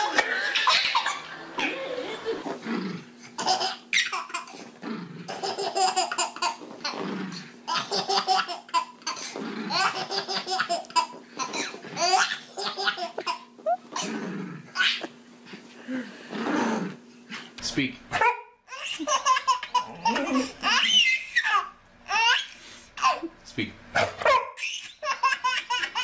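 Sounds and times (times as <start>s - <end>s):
baby laughing: 0.0s - 2.5s, 3.4s - 4.6s, 5.3s - 7.0s, 7.7s - 14.1s, 14.8s - 15.2s, 18.7s - 23.3s, 24.6s - 26.0s.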